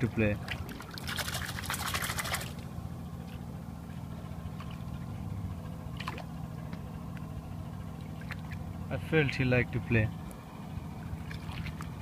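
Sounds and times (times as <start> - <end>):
water splashing: 0.0 - 2.7, 4.4 - 8.9, 10.8 - 12.0
boat motor running: 0.0 - 12.0.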